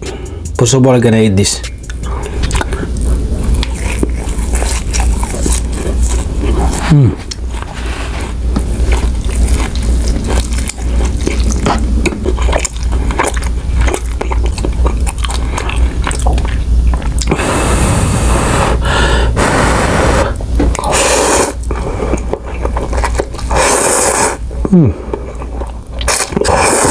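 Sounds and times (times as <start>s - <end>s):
wet chewing: 1.6s - 17.4s, 20.3s - 26.9s
slurping noodles: 17.2s - 24.4s, 25.4s - 26.9s.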